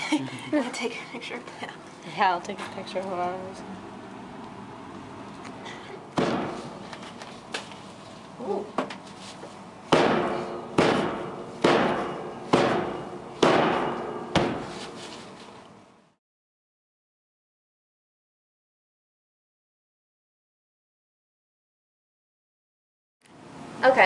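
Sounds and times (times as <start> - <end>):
sharp ringing hits: 9.9 - 14.7.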